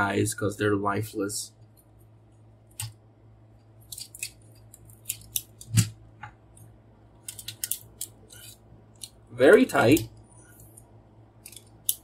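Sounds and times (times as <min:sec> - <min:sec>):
plastic figure parts clicking: 0:03.9 - 0:05.9, 0:07.2 - 0:10.1, 0:10.8 - 0:12.0.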